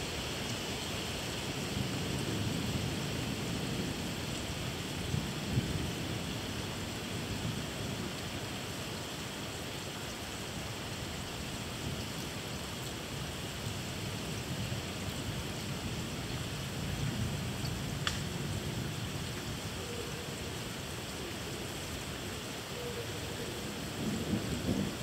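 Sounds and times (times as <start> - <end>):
steady rain falling: 0.0 - 25.0
low thunder rumble: 23.7 - 25.0.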